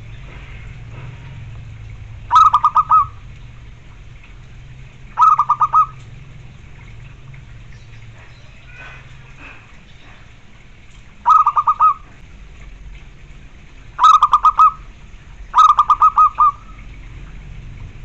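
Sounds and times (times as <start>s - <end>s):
dove cooing: 2.3s - 3.3s, 5.2s - 6.2s, 11.2s - 12.2s, 14.0s - 14.9s, 15.5s - 16.9s.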